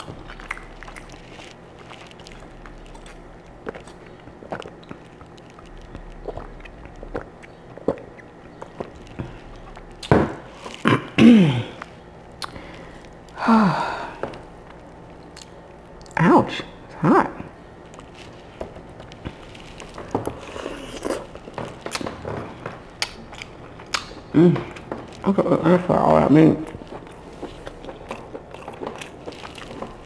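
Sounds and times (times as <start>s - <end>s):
woman's wordless vocal sounds: 13.3s - 14.3s.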